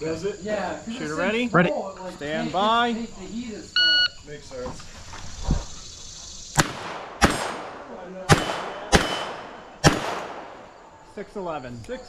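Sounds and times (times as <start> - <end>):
handgun shots: 6.6 - 10.8.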